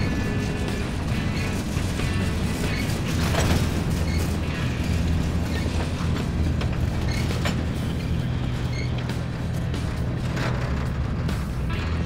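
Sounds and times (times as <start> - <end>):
train wheels rumbling on rail: 0.0 - 12.0
wheels clicking over rail joints: 0.0 - 12.0
short high wheel squeals: 2.2 - 4.7, 7.0 - 9.2.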